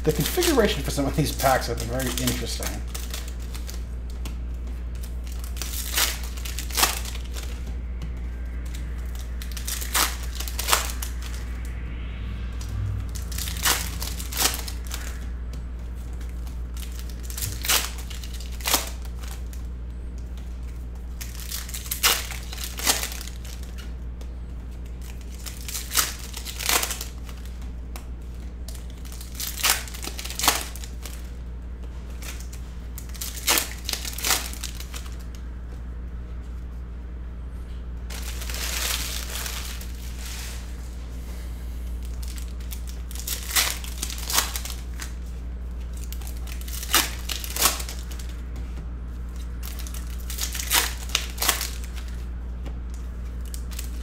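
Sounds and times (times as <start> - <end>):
foil packs crinkling: 0.0 - 4.0, 4.9 - 7.6, 8.7 - 11.4, 13.2 - 15.3, 16.0 - 19.7, 20.4 - 23.9, 24.7 - 27.6, 28.6 - 31.4, 32.1 - 35.3, 38.1 - 40.8, 41.9 - 48.4, 49.2 - 52.3, 53.0 - 54.0
trading cards being handled: 0.1 - 11.4.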